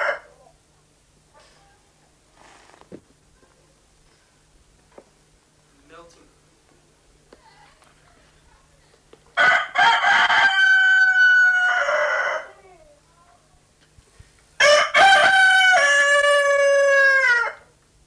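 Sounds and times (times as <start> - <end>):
rooster crowing: 0.0 - 0.5, 9.4 - 12.7, 14.6 - 17.8.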